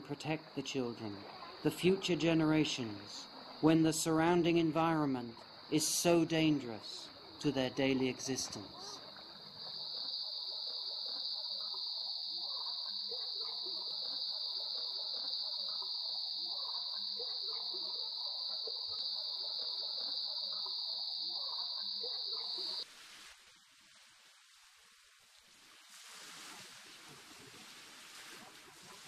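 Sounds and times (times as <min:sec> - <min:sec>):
high-pitched insect drone: 0:05.6 - 0:22.8.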